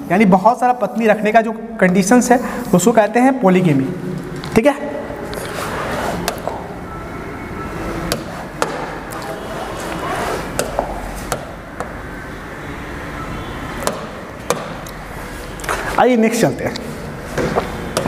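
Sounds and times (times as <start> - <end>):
room noise: 0.0 - 18.0
taps on touchscreen: 10.6 - 11.9.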